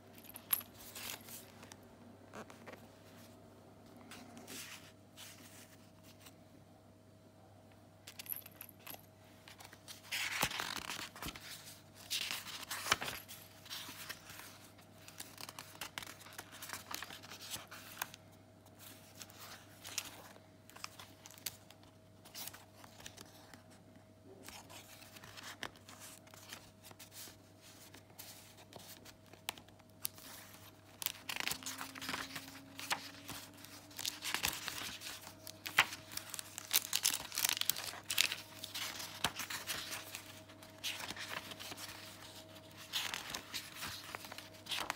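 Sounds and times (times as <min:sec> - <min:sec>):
paper pages turning and rustling: 0:04.0 - 0:06.4, 0:09.5 - 0:23.8, 0:24.4 - 0:44.9.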